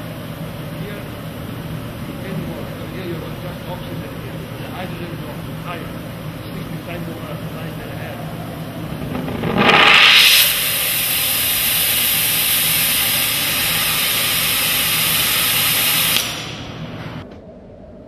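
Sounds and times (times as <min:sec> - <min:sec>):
gas torch flame hissing: 0:08.4 - 0:17.2.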